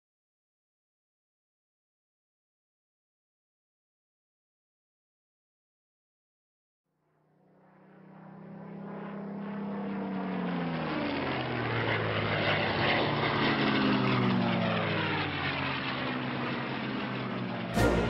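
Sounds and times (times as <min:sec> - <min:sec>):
propeller aircraft engine passing: 0:07.0 - 0:18.0.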